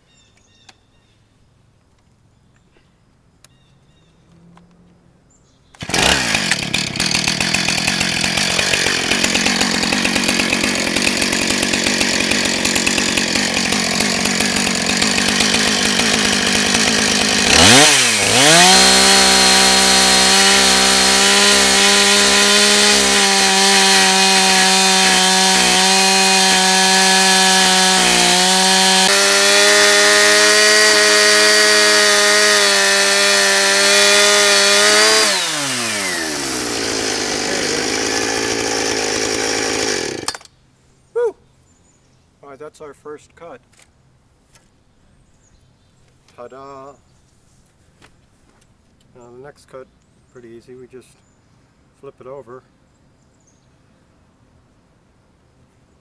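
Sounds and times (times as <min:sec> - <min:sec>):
chainsaw cutting through log: 0:05.8 - 0:40.5
chainsaw revving: 0:05.8 - 0:40.5.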